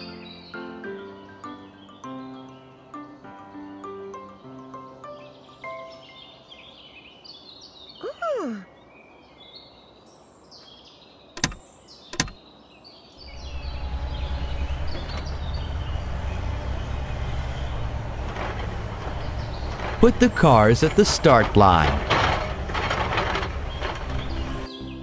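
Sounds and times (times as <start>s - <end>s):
birdsong: 0.0s - 25.0s
falling cartoon tone: 8.0s - 8.6s
sharp clicks: 11.4s - 12.4s
low motor rumble: 13.2s - 24.7s.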